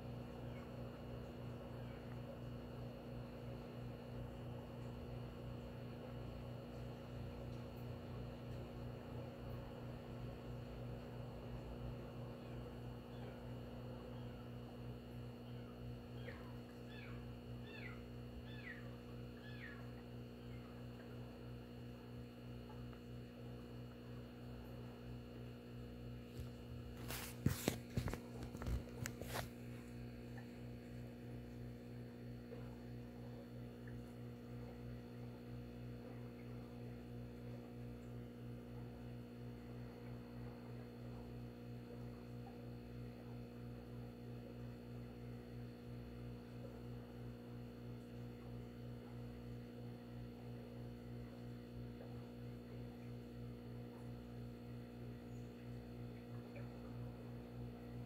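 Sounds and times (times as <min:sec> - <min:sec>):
electrical mains hum: 0:00.0 - 0:58.0.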